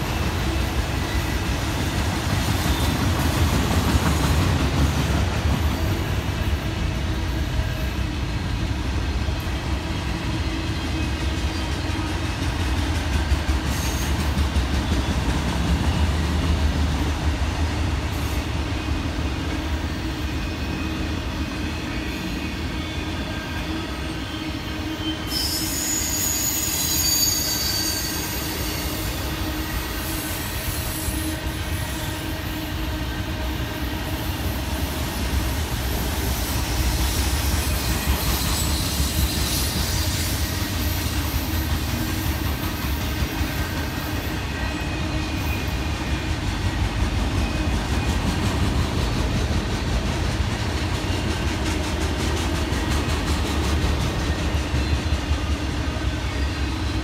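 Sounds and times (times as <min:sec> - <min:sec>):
train wheels rumbling on rails: 0:00.0 - 0:57.0
high-pitched wheel squeal: 0:21.8 - 0:32.7, 0:36.3 - 0:41.4.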